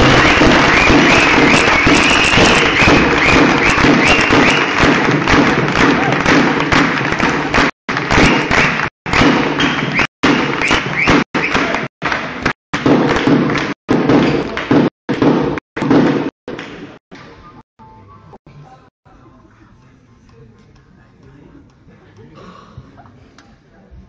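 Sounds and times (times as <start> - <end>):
crowd voices in a sports hall: 16.7 - 24.0.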